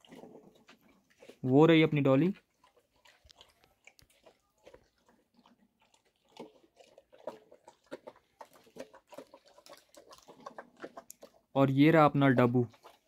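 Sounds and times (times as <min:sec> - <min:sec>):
dog chewing and crunching: 0:00.0 - 0:13.0.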